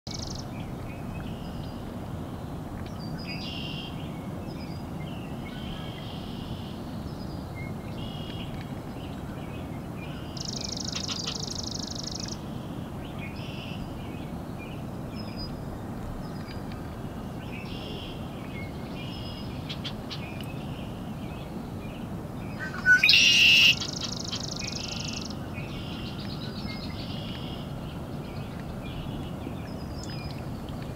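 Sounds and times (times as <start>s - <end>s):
low background noise: 0.1s - 30.9s
small birds calling: 7.9s - 15.6s, 17.4s - 30.6s
buzzy bird trill: 22.6s - 25.3s
harsh bird call: 22.6s - 25.3s.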